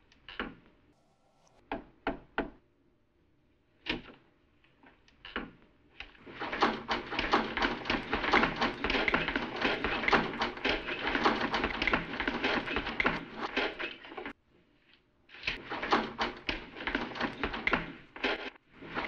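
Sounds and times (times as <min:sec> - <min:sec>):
people scuffling about a room: 0:06.2 - 0:19.0.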